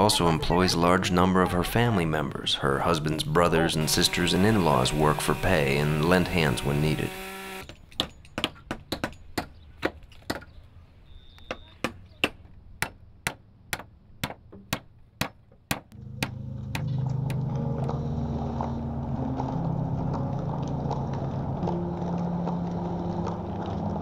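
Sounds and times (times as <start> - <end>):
low drone of held notes: 2.8 - 7.2, 16.0 - 24.0.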